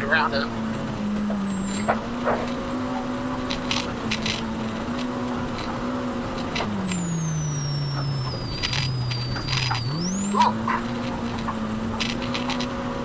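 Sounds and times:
engine running: 0.0 - 13.0
high engine whine: 0.0 - 13.0.

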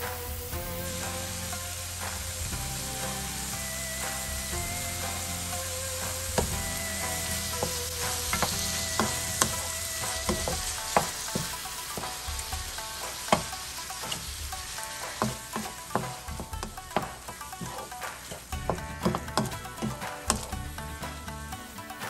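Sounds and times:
food sizzling in a frying pan: 0.0 - 22.0
spatula scraping a pan: 6.3 - 20.5.

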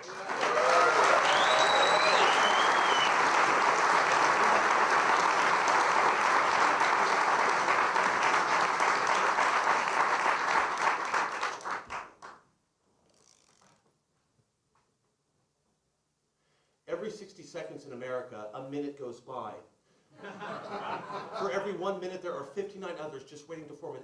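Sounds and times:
audience applauding: 0.0 - 12.4.

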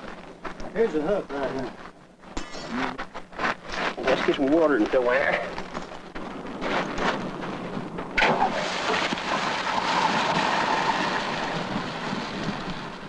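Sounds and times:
water hissing into steam: 8.2 - 12.7.

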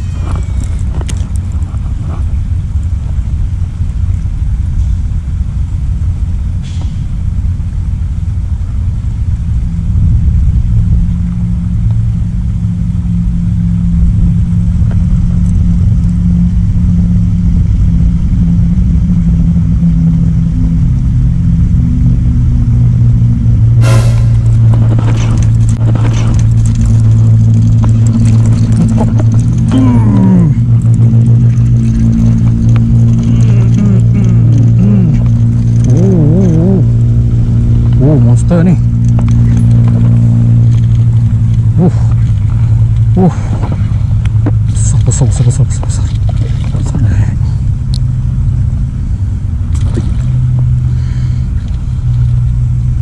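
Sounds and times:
vehicle engine rumbling: 0.0 - 53.0.

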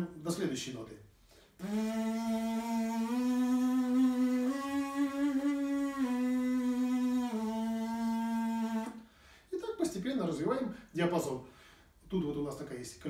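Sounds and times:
lips buzzing: 1.6 - 9.0.

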